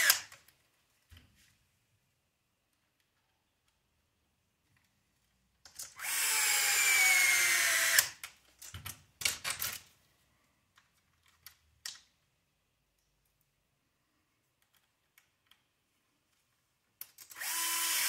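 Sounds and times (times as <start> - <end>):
electric screwdriver whine: 6.0 - 8.2, 17.4 - 18.0.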